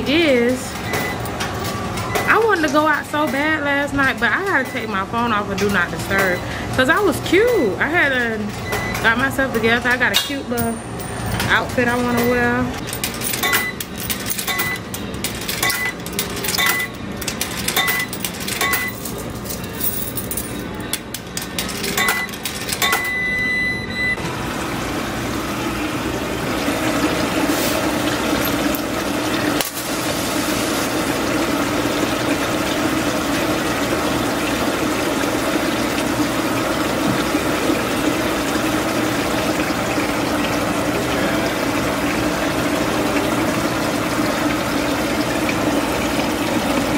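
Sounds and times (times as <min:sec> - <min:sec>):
short electronic beeps: 0:22.0 - 0:24.2
water rushing into drum: 0:24.2 - 0:46.9.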